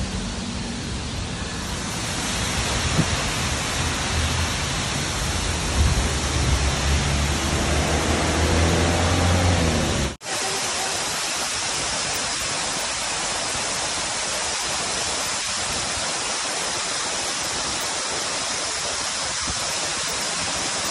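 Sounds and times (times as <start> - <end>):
waterfall rushing into a pool: 1.4 - 20.9.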